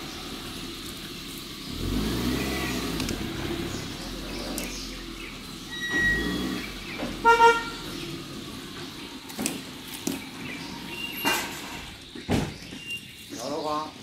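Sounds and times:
horn-like toot: 7.2s - 7.8s.

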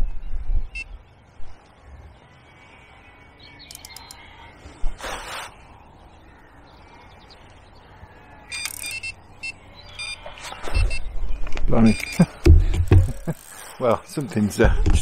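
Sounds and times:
bite alarm high beeps: 8.5s - 11.1s, 11.8s - 12.3s.

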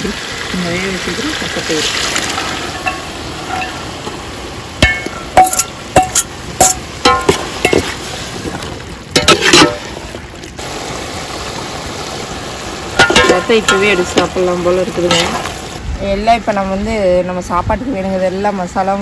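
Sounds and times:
hiss of simmering food: 0.0s - 15.8s
ladle scraping metal pot: 1.8s - 4.2s, 4.8s - 10.1s, 13.0s - 15.5s
ladle clanking on metal pot: 2.2s - 4.2s, 4.8s - 8.0s, 9.1s - 10.0s, 13.0s - 15.5s.

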